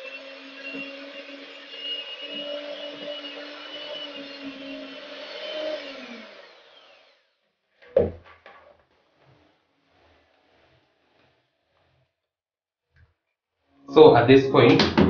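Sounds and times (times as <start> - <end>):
hand mixer motor whining: 0.0 - 7.4.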